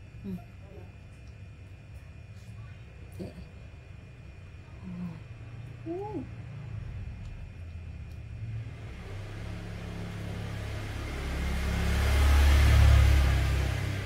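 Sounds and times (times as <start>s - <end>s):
motor vehicle passing: 6.2s - 14.0s.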